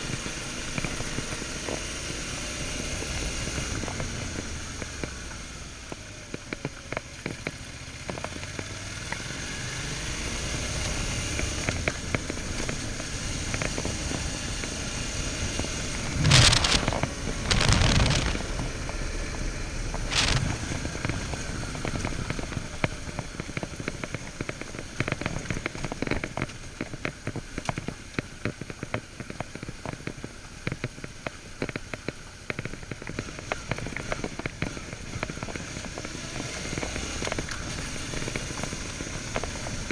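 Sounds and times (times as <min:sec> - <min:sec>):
gravel crackling and rattle: 0:00.0 - 0:39.9
muffled motorcycle engine: 0:00.0 - 0:39.9
loud rushes of noise: 0:15.9 - 0:20.8.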